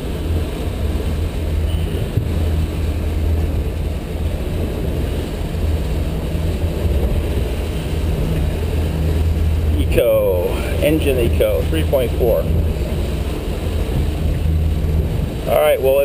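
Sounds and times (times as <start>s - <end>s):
boat engine droning: 0.0s - 16.0s
water rushing against hull: 0.0s - 16.0s.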